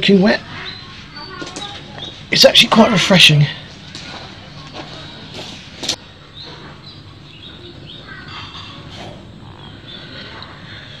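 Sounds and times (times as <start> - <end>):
small animals chirping: 6.3 - 11.0.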